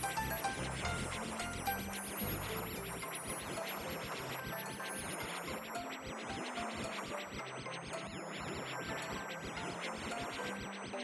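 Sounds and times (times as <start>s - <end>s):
cartoon background music: 0.0s - 11.0s.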